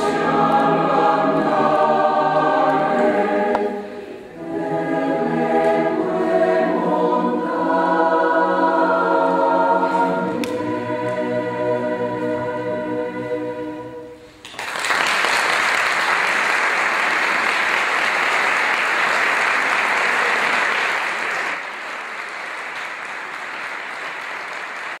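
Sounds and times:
choir holding a chord: 0.0 - 14.4
audience applause: 14.5 - 25.0.

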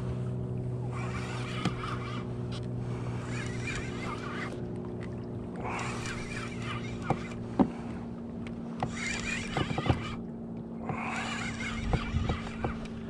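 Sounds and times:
steady low hum: 0.0 - 13.0
fishing reel squeaky whine: 0.7 - 4.7, 5.6 - 7.5, 8.8 - 13.0.

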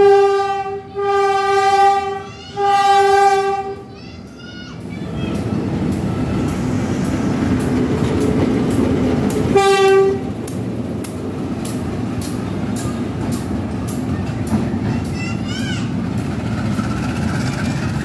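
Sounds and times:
train horn blast: 0.0 - 3.9, 9.5 - 10.4
diesel engine rumbling: 0.3 - 18.0
wheels clicking over rail joints: 3.9 - 18.0.

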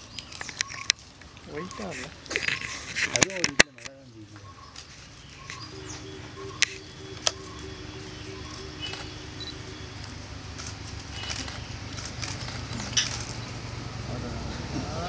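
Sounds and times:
steady low hum: 3.8 - 15.0
faint bird chirps: 4.0 - 12.0
camera shutter clicking: 8.8 - 13.4.

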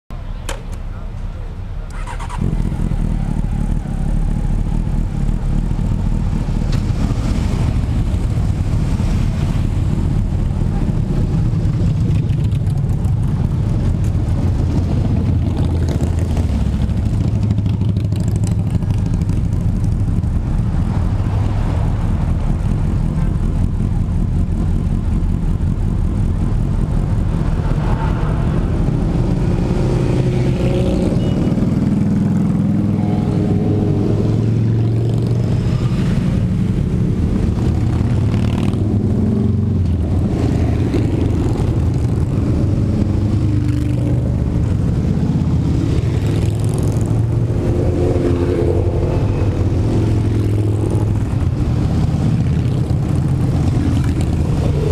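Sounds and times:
motorcycles riding past: 1.9 - 54.9.

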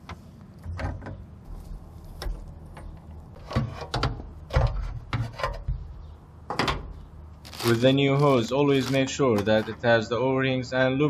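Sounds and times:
hose scraping and knocking: 0.0 - 5.9.

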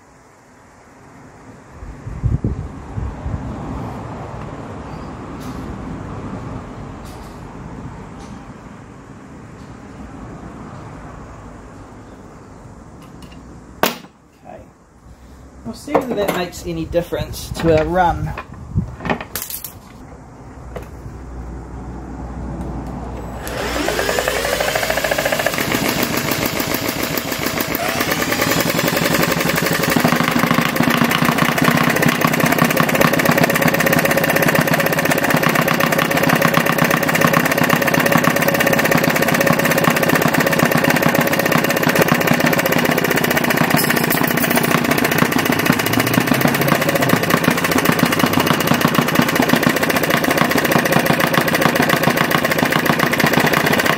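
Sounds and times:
model diesel engine running: 23.2 - 53.9.

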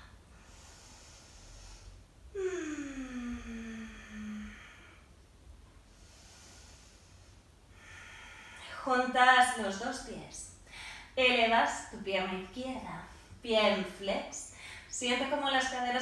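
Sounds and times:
woman breathing in: 0.1 - 5.1, 5.9 - 8.8, 10.6 - 11.2, 14.5 - 14.9
woman sighing exhale: 2.3 - 5.0.

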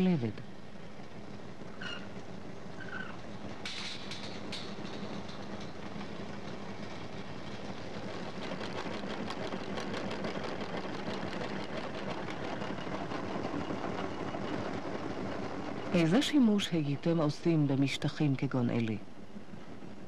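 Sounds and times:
textile machinery rattling: 1.2 - 18.6
fast machine clicks: 3.6 - 15.4.

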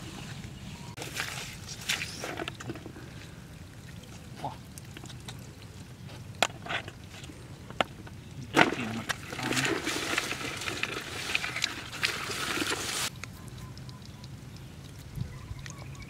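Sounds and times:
wet rustling and splashing: 0.9 - 15.9.

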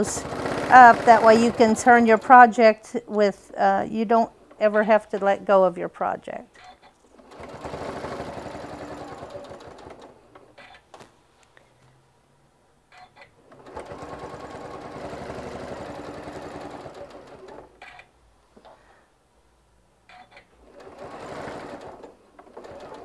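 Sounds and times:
sewing machine stitching: 0.0 - 2.5, 6.6 - 10.9, 12.9 - 18.1, 20.1 - 23.0.

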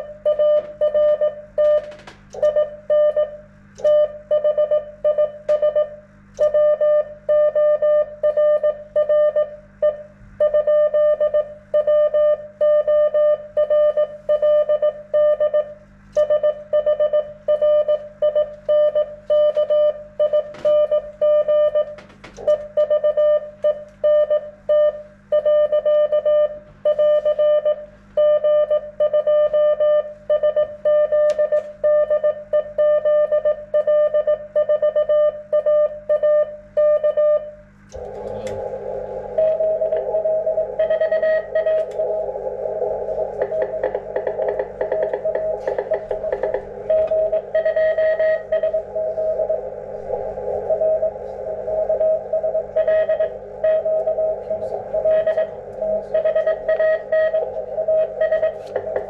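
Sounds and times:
morse code beeping: 16.2 - 59.0
radio band hiss: 37.9 - 59.0.

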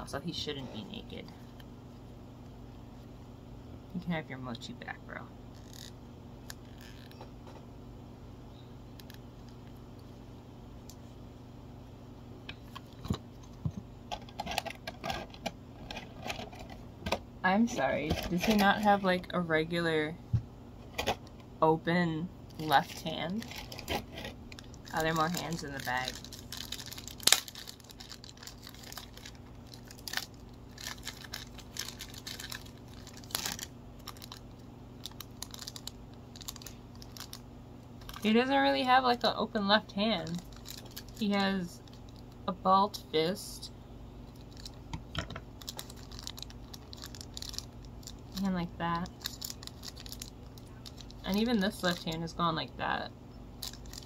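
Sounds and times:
faint steady hum: 0.0 - 54.0
plastic packaging clicks and rattles: 14.1 - 17.2, 23.4 - 37.4, 40.3 - 42.4, 44.4 - 48.4, 49.0 - 52.1, 53.6 - 54.0
plastic bag crinkling: 22.6 - 37.4, 38.0 - 39.4, 40.1 - 42.5, 44.3 - 44.9, 45.5 - 52.2, 53.6 - 54.0.

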